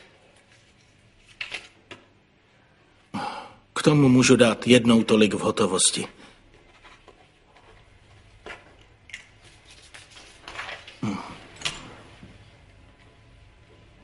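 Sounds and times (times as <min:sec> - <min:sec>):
paper rustling: 0:00.0 - 0:02.0, 0:06.6 - 0:11.0.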